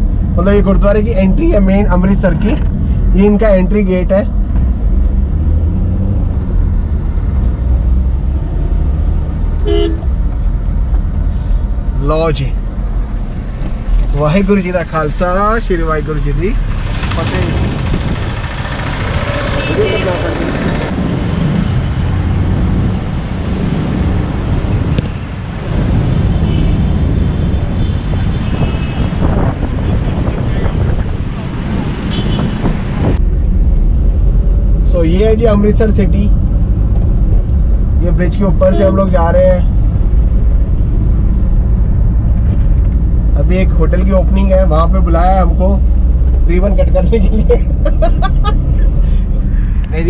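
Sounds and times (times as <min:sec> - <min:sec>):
car cabin road rumble: 0:00.0 - 0:50.0
vehicle horn toot: 0:09.6 - 0:10.1, 0:19.4 - 0:20.3, 0:26.4 - 0:26.8, 0:27.8 - 0:29.2, 0:32.1 - 0:32.6.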